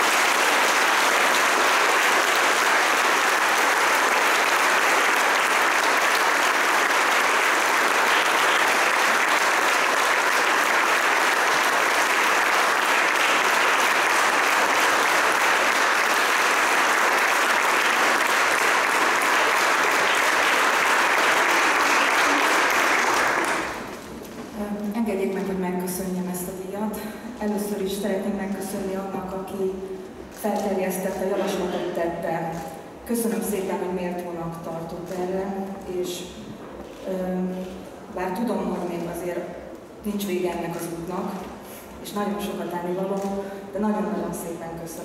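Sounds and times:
audience applauding: 0.0 - 24.2.

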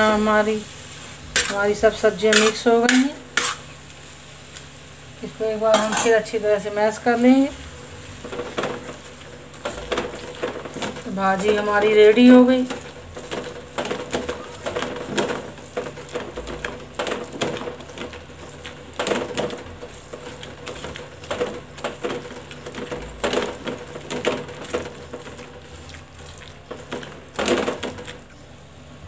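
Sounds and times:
light sizzle: 0.0 - 29.0
metal utensil mashing on griddle: 1.3 - 3.8, 5.7 - 6.2, 8.2 - 28.4.

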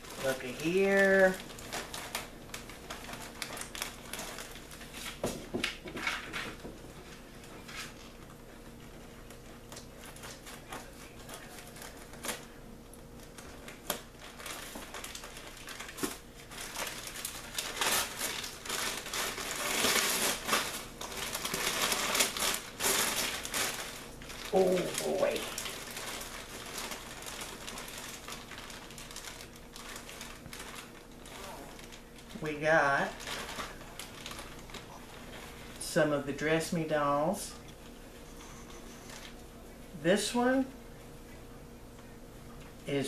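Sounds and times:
paper tearing and crumpling: 0.0 - 5.2, 13.2 - 35.8
wrapping paper crinkling: 0.0 - 40.7.

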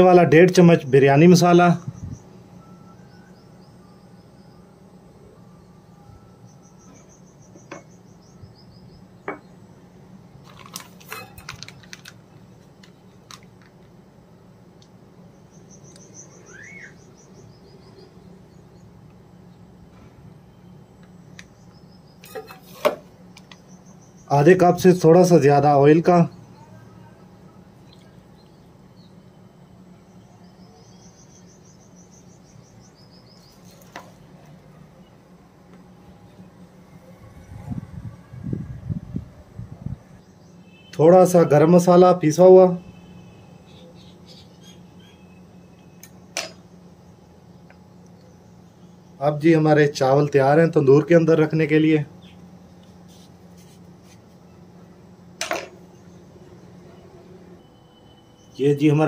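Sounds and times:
steady low hum: 0.0 - 59.0
high-pitched chirping trills: 1.5 - 9.9, 15.2 - 19.7, 23.4 - 24.9, 55.8 - 59.0.

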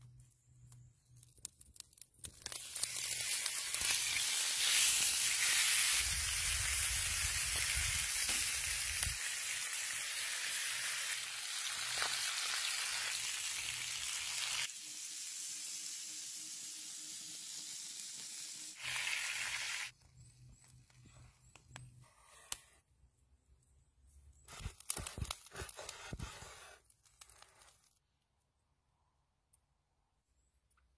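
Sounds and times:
steak sizzling in a pan: 2.5 - 19.9.

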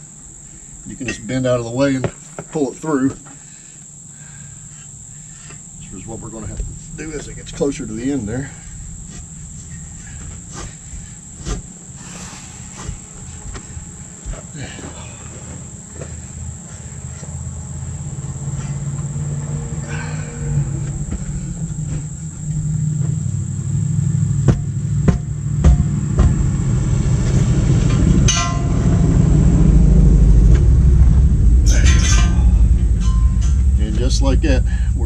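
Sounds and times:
high insect drone: 0.0 - 35.0
low rumble: 4.8 - 12.0, 17.6 - 35.0
tire knocks and clunks: 5.3 - 17.4, 18.2 - 35.0.

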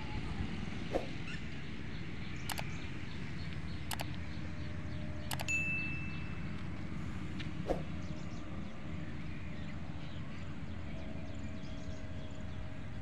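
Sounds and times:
faint birds chirping: 0.9 - 13.0
short click: 3.9 - 4.1, 5.3 - 5.5.

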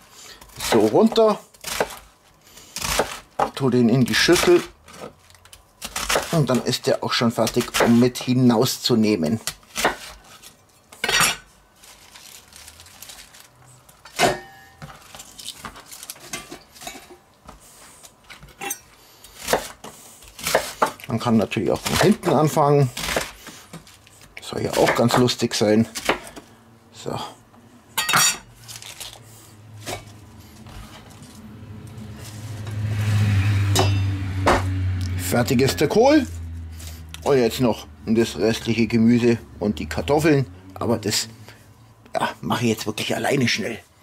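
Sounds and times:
cabbage rustling: 11.6 - 14.0, 14.9 - 16.4, 28.6 - 32.6
steady low hum: 26.1 - 42.8.

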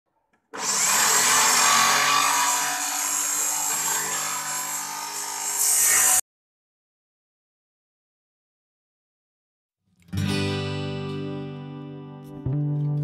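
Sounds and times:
power tool cutting wood: 0.5 - 6.2.

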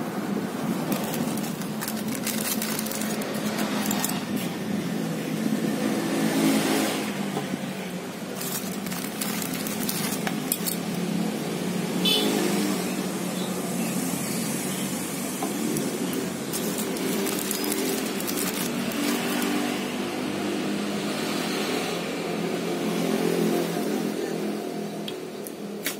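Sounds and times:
cables and plastic rattling: 0.7 - 4.5, 8.2 - 11.0, 15.7 - 20.0.

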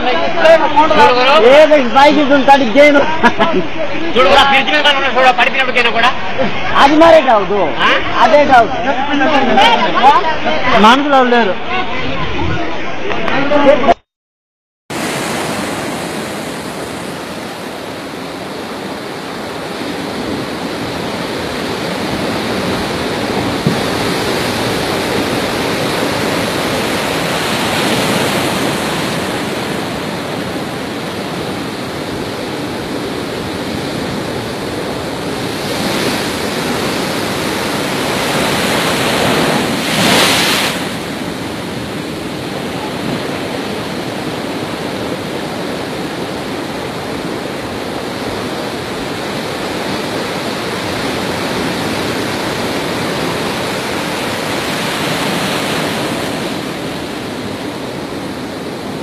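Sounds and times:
storm waves crashing: 14.9 - 59.0.

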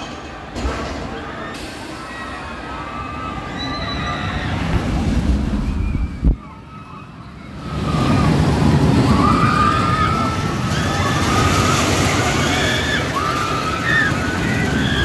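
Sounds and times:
roller coaster wheels rumbling on track: 0.0 - 15.0
riders screaming: 5.6 - 15.0.

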